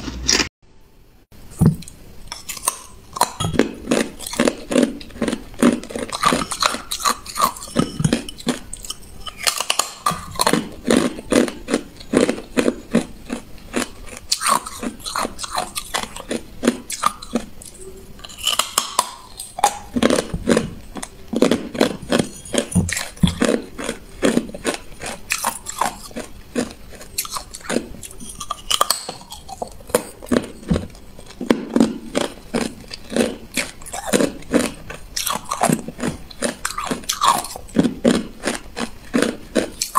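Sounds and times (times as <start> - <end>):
person crunching ice: 18.2 - 30.6, 31.2 - 39.9.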